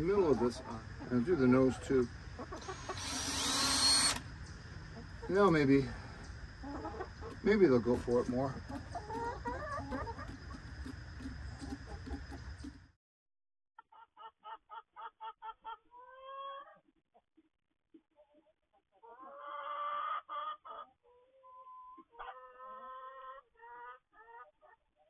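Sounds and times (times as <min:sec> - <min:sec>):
hens clucking: 0:00.0 - 0:12.9, 0:14.2 - 0:17.0, 0:17.9 - 0:24.8.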